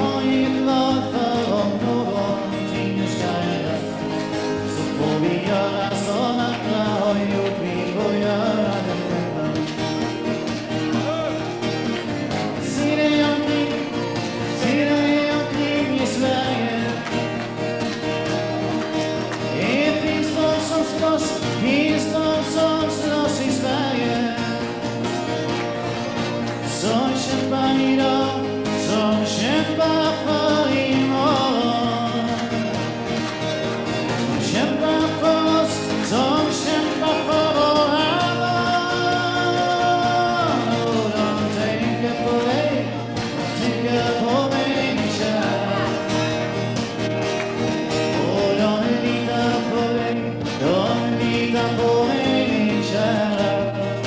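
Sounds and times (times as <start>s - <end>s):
person singing: 0.0s - 17.6s, 19.3s - 25.0s, 26.5s - 33.0s, 34.1s - 46.7s, 48.0s - 54.0s
country dance band backing: 0.0s - 54.0s.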